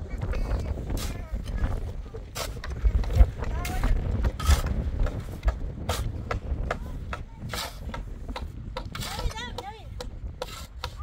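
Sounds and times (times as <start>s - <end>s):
spade scraping sand: 2.3s - 6.3s, 7.4s - 8.1s, 8.9s - 9.6s, 10.4s - 11.0s.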